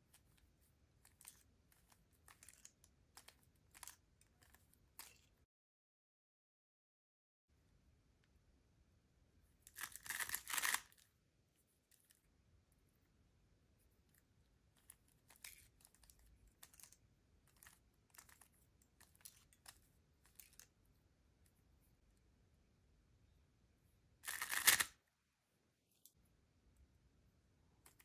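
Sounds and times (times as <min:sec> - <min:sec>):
puzzle cube clacks: 0:09.8 - 0:10.9, 0:24.3 - 0:24.9
puzzle cube clicking: 0:09.8 - 0:10.9, 0:24.3 - 0:24.9.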